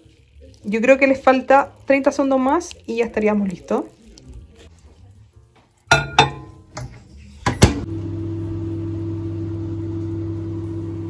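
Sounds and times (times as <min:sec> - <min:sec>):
microwave oven humming: 0:07.7 - 0:11.0.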